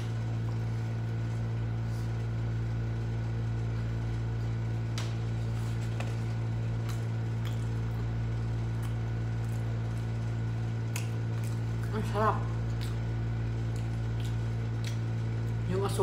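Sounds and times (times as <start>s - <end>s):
appliance humming: 0.0s - 16.0s
person chewing sticky food: 5.8s - 11.9s, 12.5s - 15.6s.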